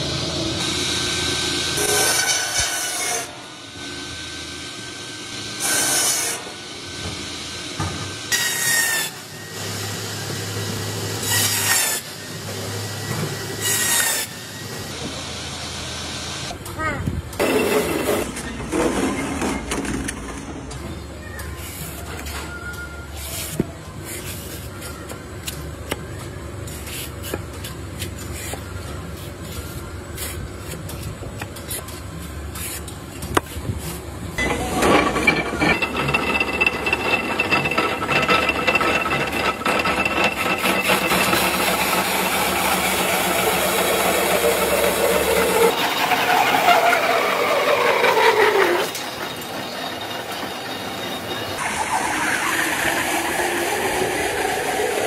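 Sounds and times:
log-peeling lathe whining: 34.4s - 55.0s.

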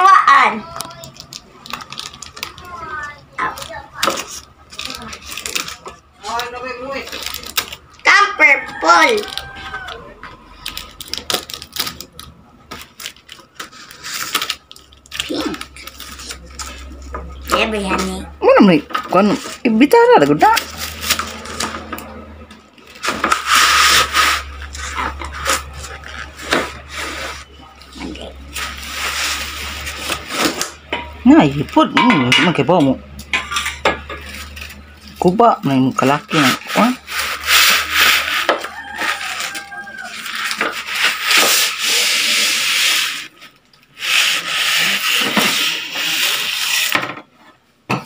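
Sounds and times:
foam scraping against cardboard: 22.9s - 30.6s, 36.2s - 43.4s, 44.0s - 47.0s
cardboard box scraping: 22.9s - 30.7s.

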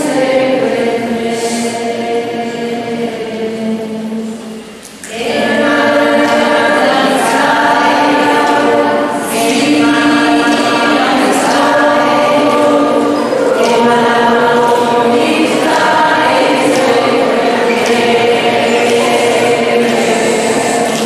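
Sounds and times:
choir singing held notes: 0.0s - 21.0s.

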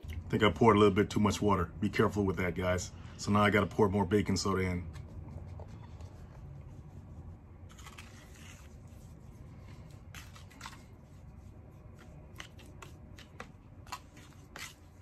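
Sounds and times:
spoon scraping paste in bowl: 7.7s - 15.0s.

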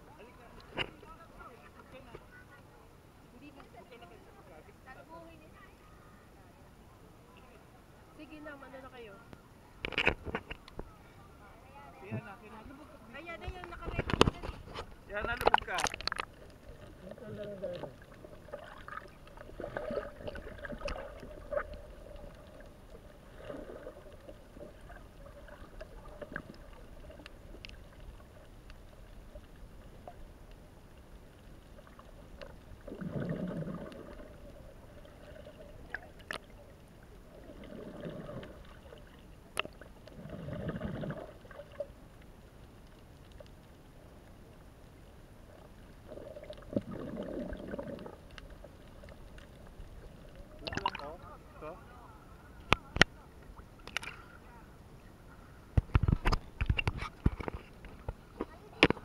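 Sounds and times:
muffled underwater water moving: 0.0s - 59.0s
gurgling and bubbling: 13.8s - 28.4s, 31.8s - 42.0s, 45.6s - 51.4s.

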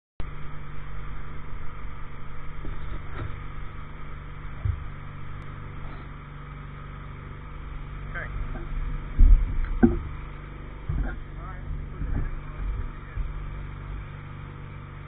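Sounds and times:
engine running steadily: 0.2s - 15.0s.

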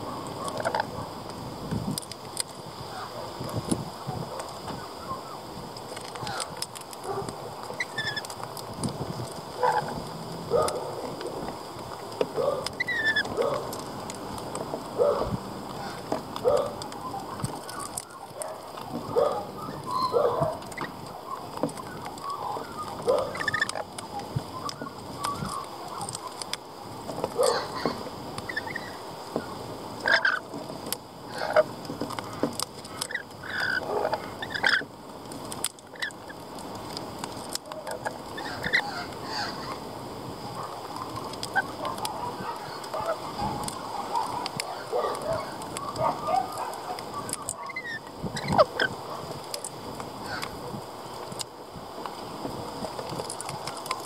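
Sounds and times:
lorikeets chattering: 12.3s - 14.1s, 15.0s - 26.6s, 27.3s - 30.5s, 32.2s - 34.9s, 37.8s - 39.9s, 40.5s - 49.1s.

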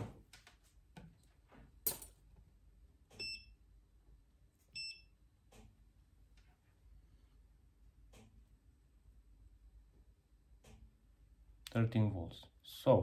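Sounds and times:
short electronic beeps: 4.8s - 5.1s.

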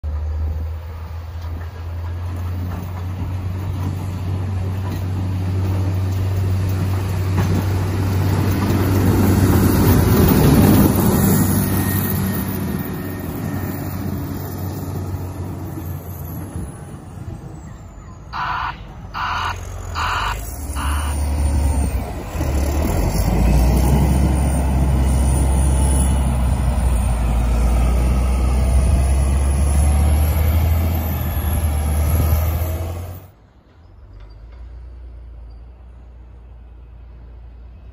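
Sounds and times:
diesel engine running: 18.2s - 33.2s
backup alarm beeps: 18.4s - 21.2s.

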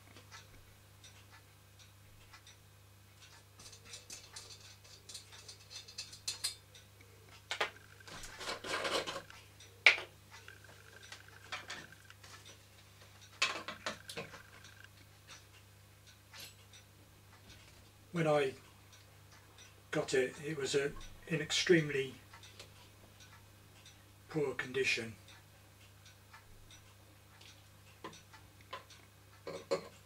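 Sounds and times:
low steady hum: 0.0s - 30.0s
metallic clicks and clinks: 3.6s - 12.6s, 13.2s - 15.4s.

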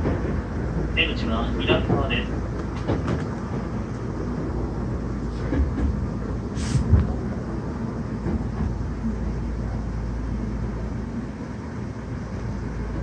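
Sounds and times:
train car rumble: 0.0s - 13.0s
short hiss: 6.5s - 7.0s.

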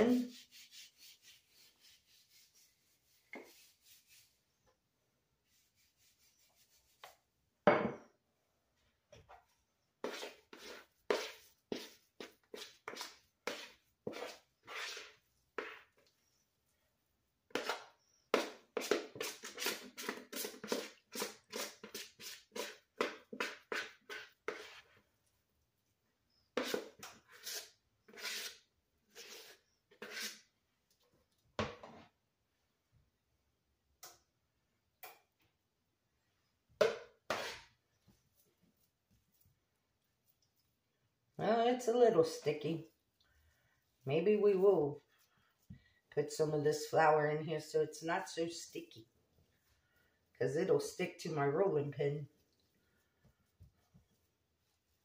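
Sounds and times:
dough scraped from plastic bowl: 10.0s - 16.1s, 17.5s - 25.0s, 26.6s - 30.5s, 37.2s - 37.8s.

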